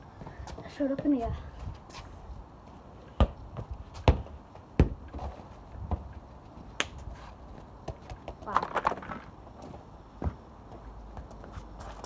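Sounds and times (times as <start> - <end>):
football thuds: 3.2 - 5.3.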